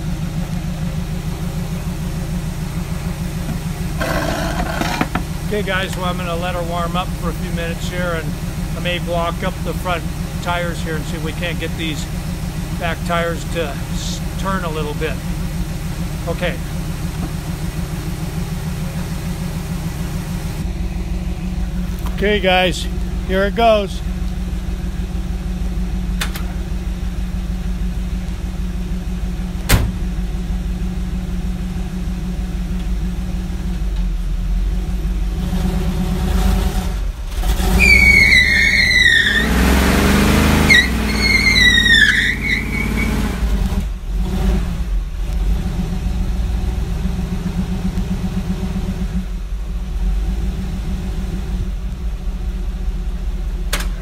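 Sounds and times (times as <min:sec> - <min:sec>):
pickup engine idling and revving: 0:00.0 - 0:54.0
tires squealing in burnout: 0:03.8 - 0:05.8, 0:35.4 - 0:43.6.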